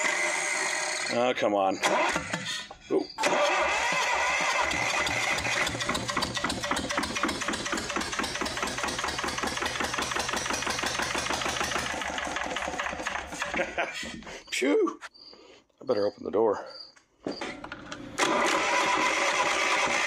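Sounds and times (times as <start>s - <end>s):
starter motor whine: 0.0s - 1.2s, 3.2s - 13.5s, 17.6s - 20.0s
diesel engine chugging: 0.0s - 14.5s.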